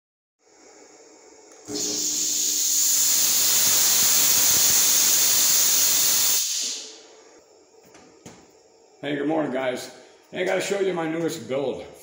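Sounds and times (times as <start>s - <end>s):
fog machine hissing: 1.6s - 7.3s.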